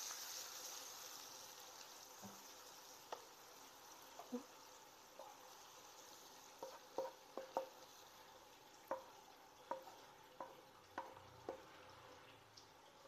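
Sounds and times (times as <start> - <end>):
faint steady hiss: 0.0 - 13.0
spatula knocking against a pan: 6.6 - 7.8, 8.8 - 11.7.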